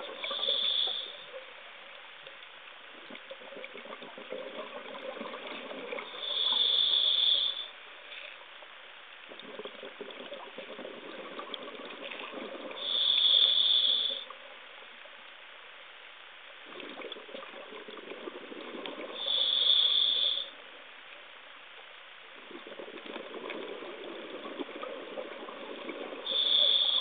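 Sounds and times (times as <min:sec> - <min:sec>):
exhaled air bubbling: 0:00.0 - 0:01.8, 0:02.8 - 0:08.3, 0:09.2 - 0:14.6, 0:16.6 - 0:20.8, 0:22.3 - 0:27.0
regulator inhalation hiss: 0:00.2 - 0:01.4, 0:06.1 - 0:07.8, 0:12.8 - 0:14.3, 0:19.2 - 0:20.6, 0:26.2 - 0:27.0.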